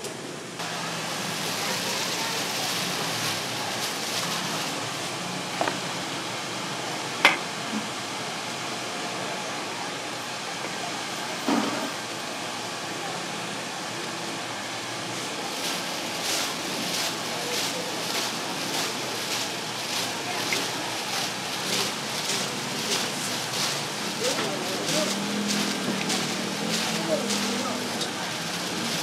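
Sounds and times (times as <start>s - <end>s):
food sizzling in wok: 0.6s - 7.6s.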